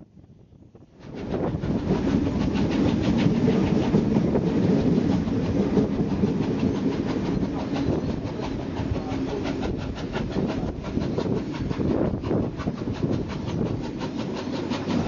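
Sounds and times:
train rumbling: 0:00.0 - 0:15.0
wheels clattering on rails: 0:01.2 - 0:15.0.

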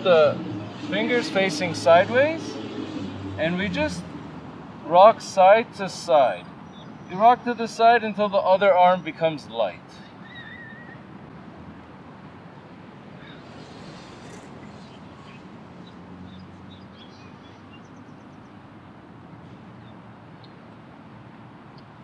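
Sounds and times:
faint bird chirps: 0:10.0 - 0:11.0.

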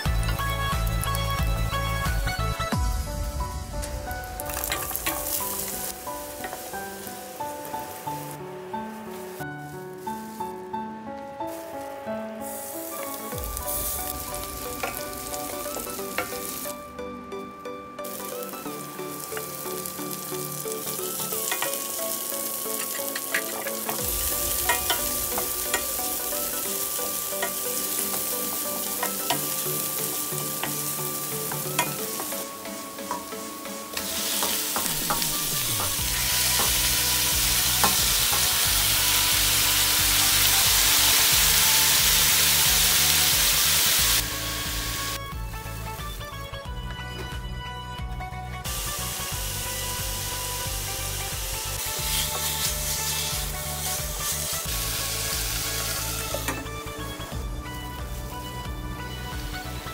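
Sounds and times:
food sizzling in hot oil: 0:00.0 - 0:10.6, 0:11.4 - 0:16.9, 0:18.0 - 0:45.2, 0:48.6 - 0:59.9.

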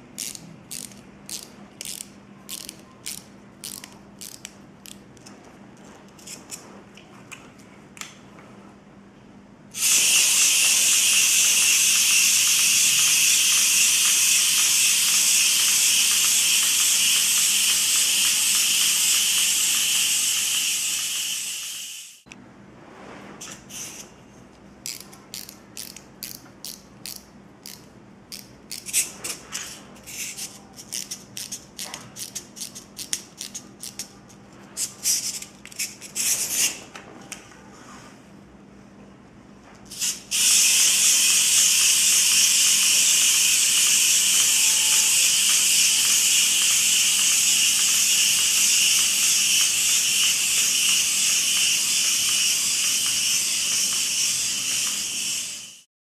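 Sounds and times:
clockwork toy motors whirring: 0:00.2 - 0:05.0, 0:09.8 - 0:22.2, 0:24.9 - 0:34.1, 0:39.9 - 0:55.9
wind-up keys ratcheting clicks: 0:09.8 - 0:21.8, 0:40.0 - 0:55.8.

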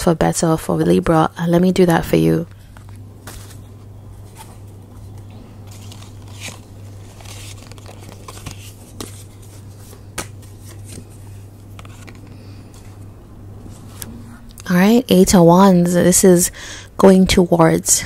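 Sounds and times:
steady low hum: 0:00.0 - 0:18.0
cards rustling and sliding: 0:02.6 - 0:14.2.

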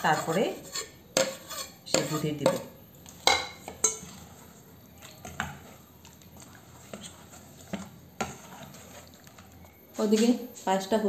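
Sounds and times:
metal spoon scraping bowl: 0:00.0 - 0:02.7, 0:03.5 - 0:09.4.

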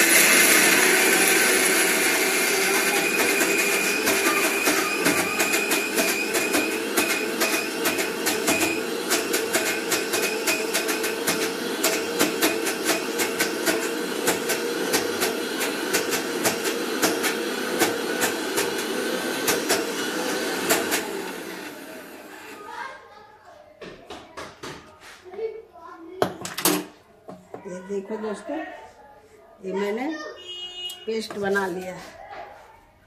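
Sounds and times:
mixer grinder motor whine: 0:00.0 - 0:22.7.

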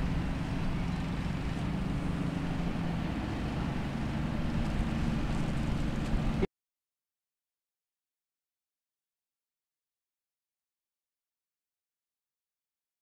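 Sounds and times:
buggy engine running hard: 0:00.0 - 0:06.5.

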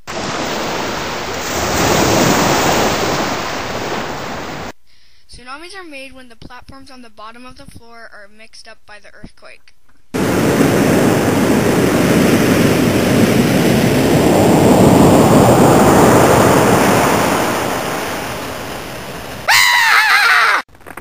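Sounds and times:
ocean waves crashing: 0:00.0 - 0:04.7, 0:10.2 - 0:19.8.

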